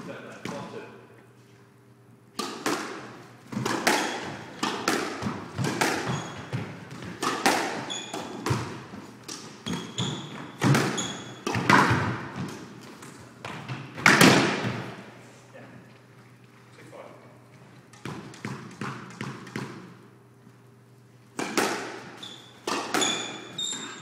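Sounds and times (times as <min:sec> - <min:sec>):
squash ball hitting rackets and walls: 0:00.0 - 0:00.9, 0:02.3 - 0:15.1, 0:17.9 - 0:20.1, 0:21.3 - 0:24.0
shoes squeaking on wooden floor: 0:05.6 - 0:11.5, 0:22.2 - 0:24.0.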